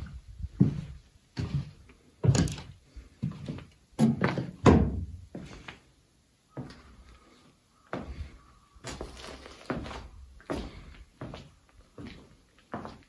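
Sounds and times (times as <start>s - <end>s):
irregular thuds and knocks: 4.0s - 5.5s.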